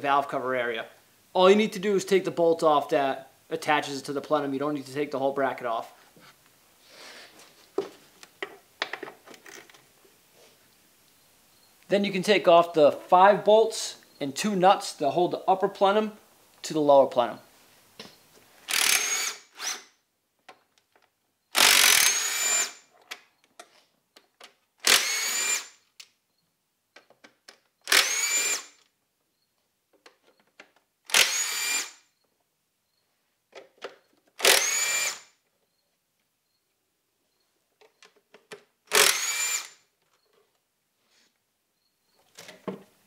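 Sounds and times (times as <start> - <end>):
power tool whirring: 18.6 - 20.0, 21.5 - 22.8, 24.8 - 25.8, 27.9 - 28.8, 31.1 - 32.0, 34.4 - 35.3, 38.9 - 39.8.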